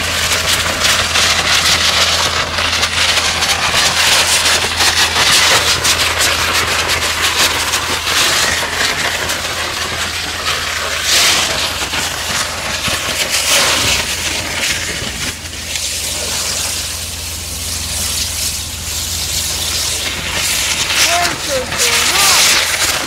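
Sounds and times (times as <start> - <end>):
steady low hum: 0.0 - 23.0
water jet spray hissing and splashing: 0.0 - 23.0.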